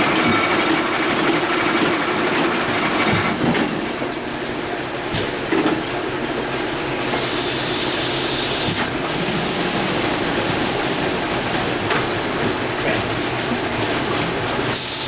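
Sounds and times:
hiss: 0:07.1 - 0:08.9, 0:14.7 - 0:15.0.

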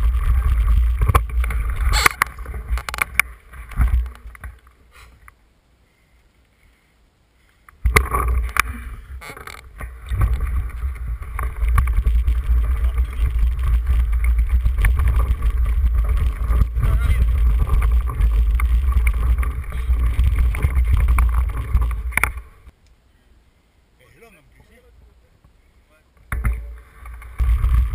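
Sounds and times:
bike rattling: 0:00.0 - 0:04.8, 0:07.8 - 0:22.7, 0:26.3 - 0:27.9
wind buffeting microphone: 0:09.9 - 0:22.7.

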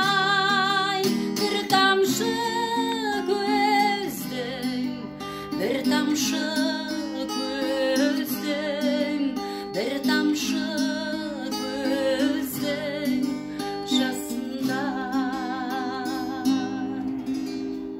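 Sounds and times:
woman singing with vibrato: 0:00.0 - 0:17.4
strummed acoustic guitar: 0:00.0 - 0:17.9.

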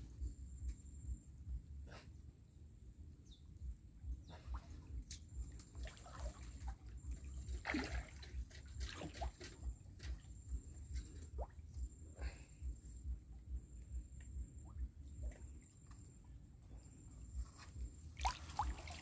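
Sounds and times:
shallow water sloshing and splashing: 0:04.4 - 0:11.8, 0:18.0 - 0:19.0.

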